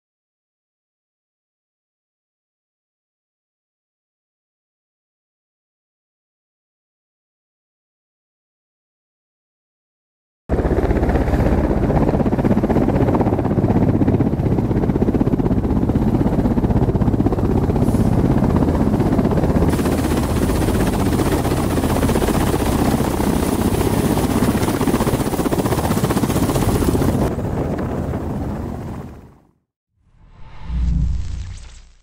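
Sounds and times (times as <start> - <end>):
helicopter rotor chop: 10.5 - 29.3
turbine noise: 30.1 - 32.0.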